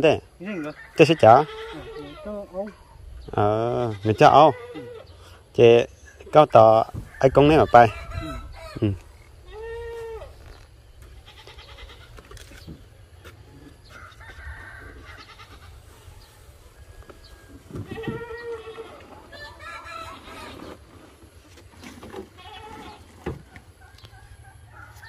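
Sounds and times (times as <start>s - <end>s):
farm animals calling: 0.2s - 25.0s.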